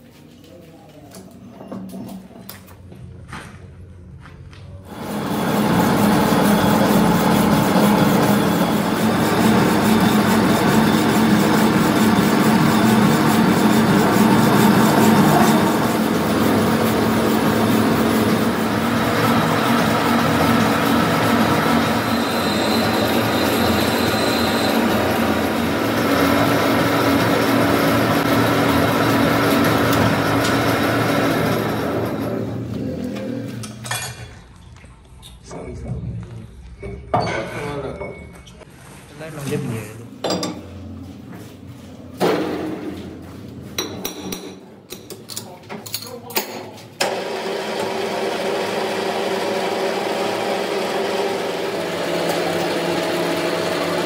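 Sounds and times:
metalworking machinery low hum: 1.1s - 45.5s, 46.9s - 54.0s
thin high whine: 21.3s - 26.0s.

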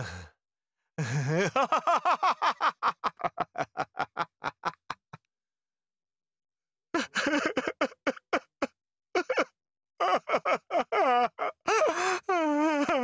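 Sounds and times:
man laughing: 1.0s - 5.2s, 7.0s - 13.0s.

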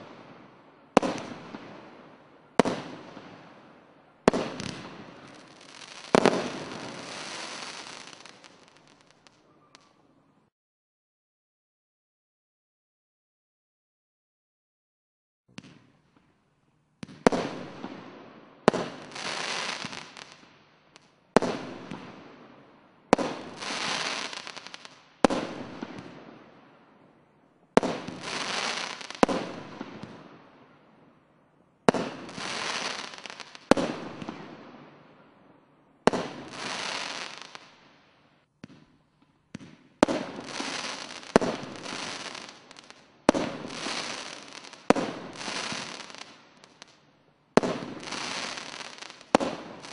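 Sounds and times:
fireworks firing bangs: 0.0s - 10.0s, 17.0s - 20.4s, 21.0s - 22.5s, 23.1s - 26.6s, 27.8s - 30.6s, 31.9s - 35.3s, 36.0s - 38.0s, 38.6s - 47.0s, 47.6s - 49.9s.

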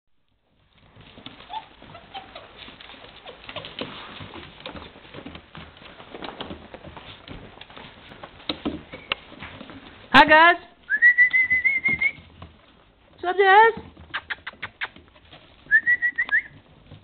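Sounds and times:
puppy paws pattering on wooden floor: 0.4s - 17.0s
puppy whimpers: 1.4s - 3.8s.

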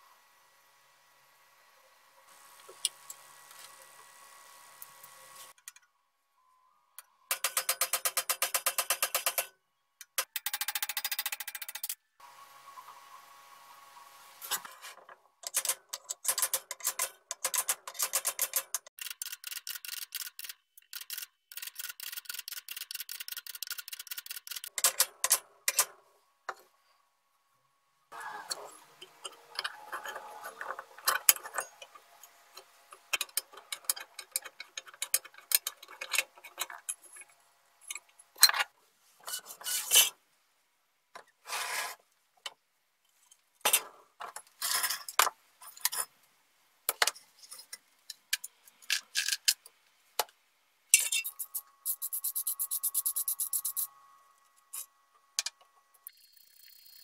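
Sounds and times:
metal parts and tools clinking: 28.4s - 40.1s, 50.9s - 53.8s.

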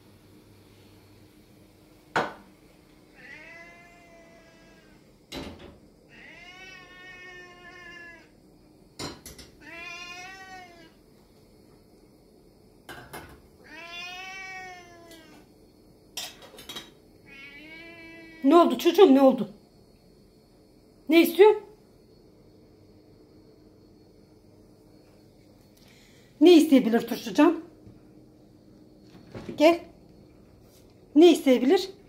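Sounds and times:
cat meowing: 3.2s - 5.0s, 6.1s - 8.3s, 9.6s - 10.9s, 13.6s - 15.4s, 17.2s - 18.4s.

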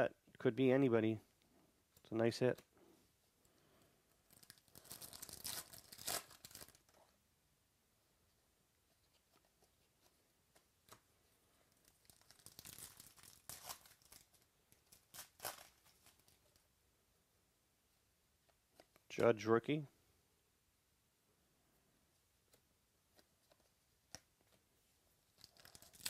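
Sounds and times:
foil wrapper tearing and crinkling: 4.3s - 7.0s, 11.8s - 16.4s, 25.4s - 26.0s.

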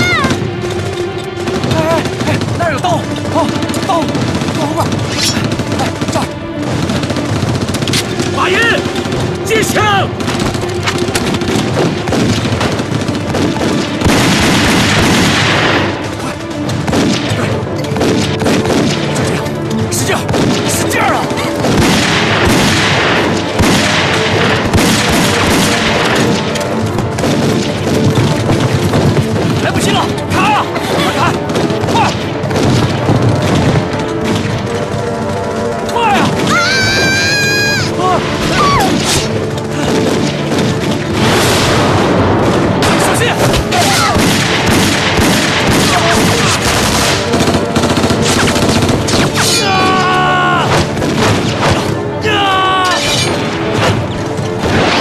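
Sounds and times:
gunfire: 0.0s - 36.5s, 37.9s - 52.3s, 52.9s - 55.0s
music: 0.0s - 55.0s
explosions: 10.1s - 19.4s, 20.2s - 30.2s, 30.8s - 34.8s, 37.8s - 49.6s, 53.1s - 55.0s
long held cry: 36.5s - 38.9s, 49.5s - 50.7s.

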